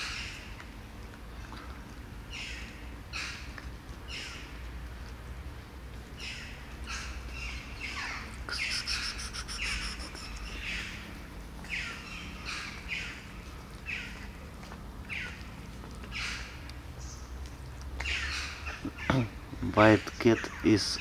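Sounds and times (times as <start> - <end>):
birds calling harshly: 2.3 - 3.5, 4.1 - 4.5, 6.2 - 14.4, 15.1 - 17.4, 18.0 - 21.0.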